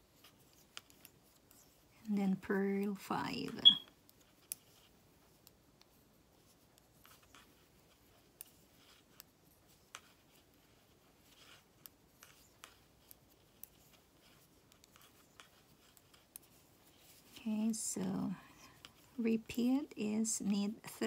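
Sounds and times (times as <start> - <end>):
knitting needles ticking: 3.5 - 4.6.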